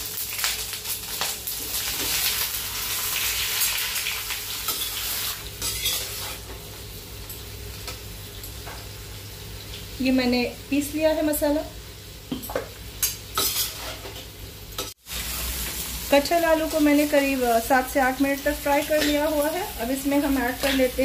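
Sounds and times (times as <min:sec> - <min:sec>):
food sizzling in hot oil: 0:00.0 - 0:21.0
steel spatula scraping a pan: 0:04.7 - 0:06.4, 0:13.4 - 0:14.1.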